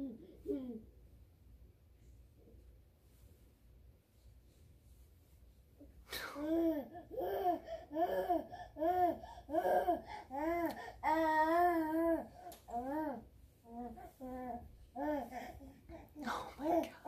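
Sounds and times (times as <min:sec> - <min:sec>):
baby babbling: 0:06.4 - 0:16.9.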